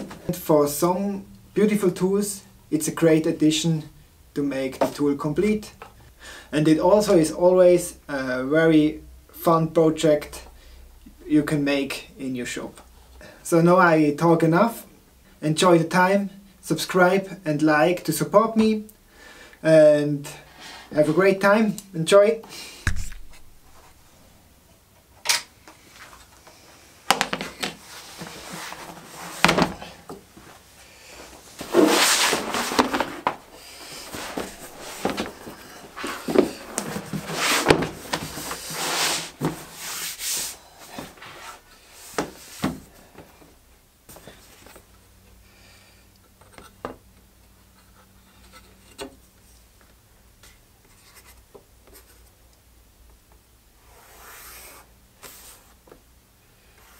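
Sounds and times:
leather hide rustling and flapping: 0:31.5 - 0:38.8.

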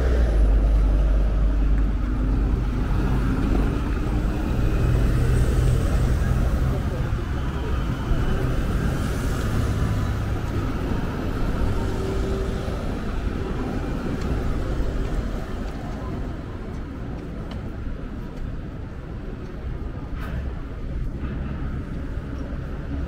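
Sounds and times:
motor vehicles passing: 0:00.0 - 0:15.8.

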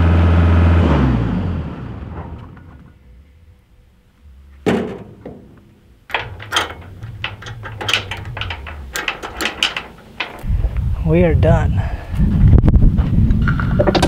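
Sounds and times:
cab door slamming: 0:04.7 - 0:10.4
chain clinking and rattling: 0:06.1 - 0:10.5.

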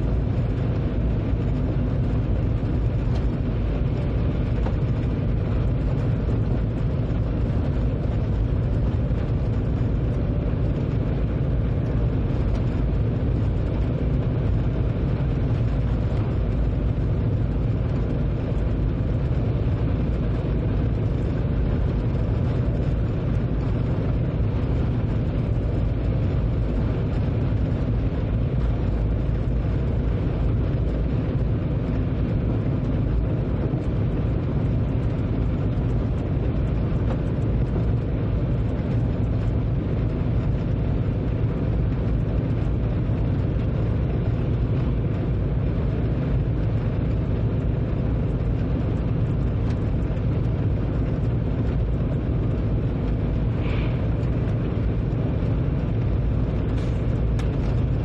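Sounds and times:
train rumbling at speed: 0:00.0 - 0:58.0.

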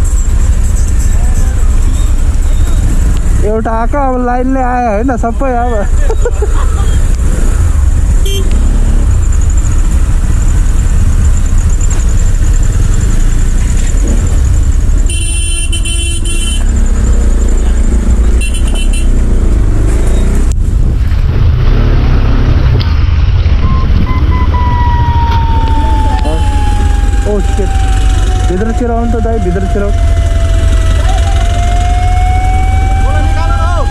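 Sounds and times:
low rumble of engines: 0:00.0 - 0:33.9
vehicle horn blasting: 0:08.2 - 0:08.6, 0:15.1 - 0:16.8, 0:18.4 - 0:19.2
siren with falling tone: 0:23.7 - 0:33.9.

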